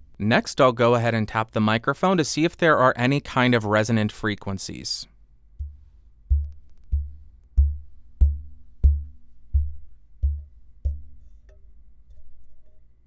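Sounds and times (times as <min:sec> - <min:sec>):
fingertips tapping on microphone: 0:05.6 - 0:12.6.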